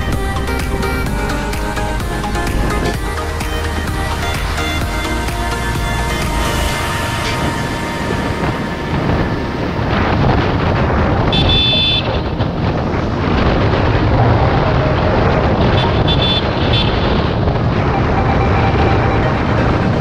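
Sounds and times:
motorcycle engine running: 0.0 - 7.6
wind rushing over microphone: 0.0 - 20.0.

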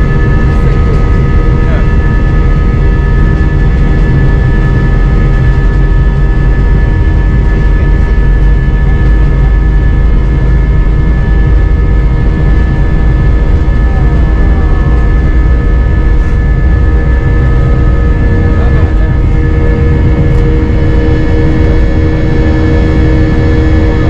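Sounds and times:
jet engines rumbling and whining: 0.0 - 24.0.

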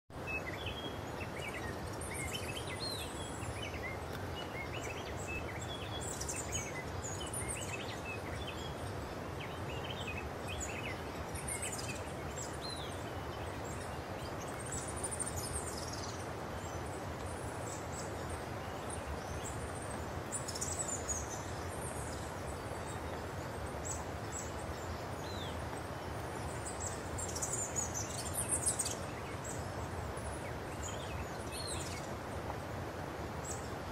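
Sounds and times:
background hiss: 0.2 - 33.9.

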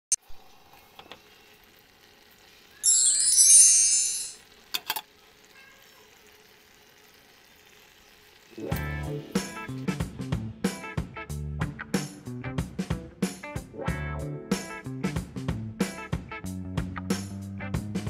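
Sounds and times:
guitar music: 8.6 - 18.0.

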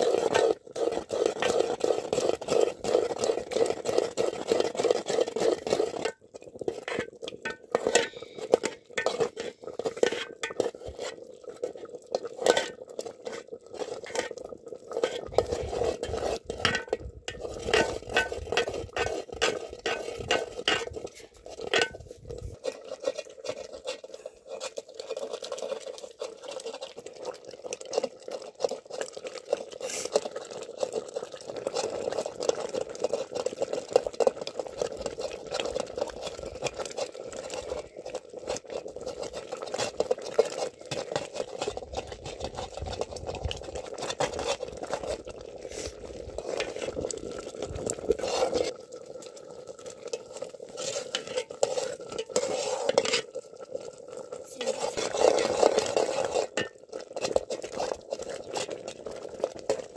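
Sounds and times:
water pouring into pot: 0.0 - 59.9
clinks and knocks against pot: 6.8 - 11.0, 16.5 - 22.8, 56.4 - 56.8.

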